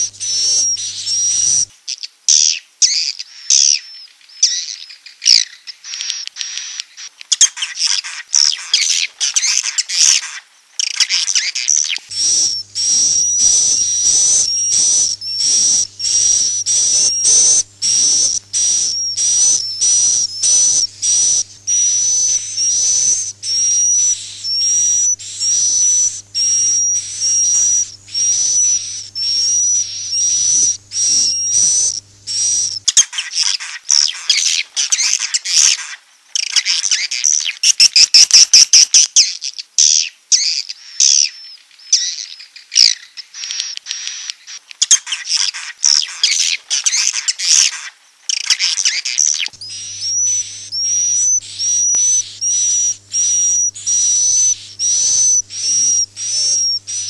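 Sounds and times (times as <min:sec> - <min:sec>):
birds twittering: 0:00.0 - 0:01.7, 0:02.4 - 0:38.4, 0:44.9 - 0:57.0
faint low hum: 0:00.0 - 0:01.7, 0:12.1 - 0:32.9, 0:49.6 - 0:57.0
buzzy bird chirps: 0:00.0 - 0:57.0.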